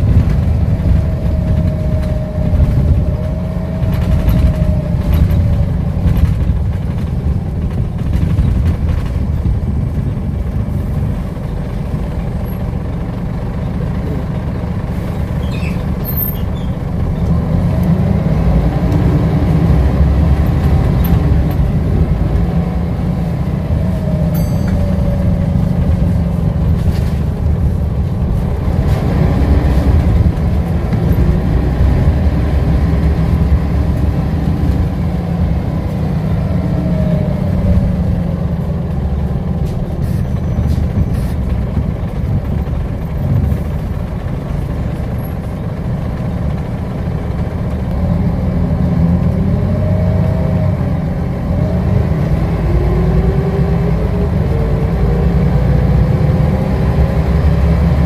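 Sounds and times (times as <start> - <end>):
bus engine rumble: 0.0 - 58.0.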